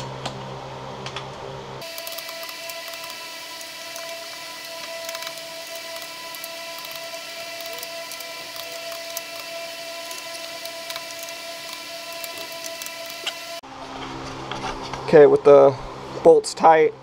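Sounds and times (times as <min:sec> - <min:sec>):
steady mechanical hum: 0:00.0 - 0:17.0
torque wrench clicks: 0:01.8 - 0:13.4.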